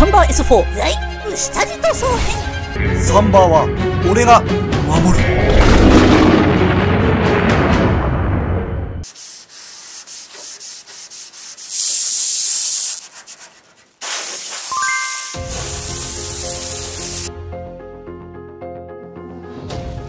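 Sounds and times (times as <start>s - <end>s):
music: 0.0s - 9.0s, 14.7s - 20.0s
hand sanding steel: 9.1s - 14.7s.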